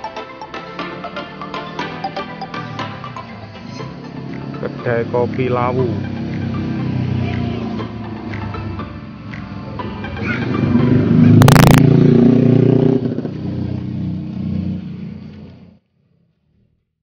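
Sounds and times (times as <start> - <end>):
vehicle engine passing and accelerating: 0.0 - 16.6
sharp engine crackle: 9.2 - 15.8.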